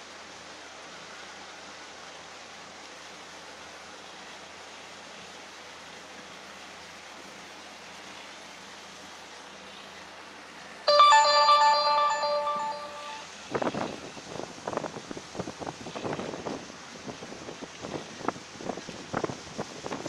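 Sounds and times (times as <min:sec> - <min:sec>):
open water hiss: 0:00.0 - 0:10.8, 0:13.3 - 0:20.0
loud tune: 0:10.9 - 0:13.2.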